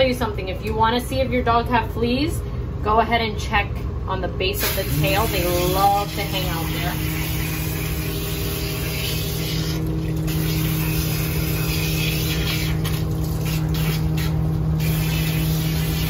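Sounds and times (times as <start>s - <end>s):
constant low hum: 0.0s - 16.0s
water spraying from nozzle: 4.6s - 16.0s.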